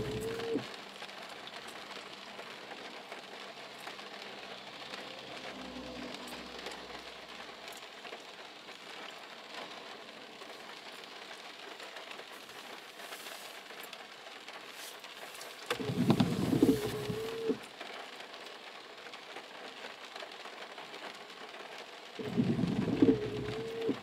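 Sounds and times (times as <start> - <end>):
rumble with held tone: 0.0 - 0.7, 15.8 - 17.6, 22.2 - 24.0
heavy rain on car roof: 0.0 - 24.0.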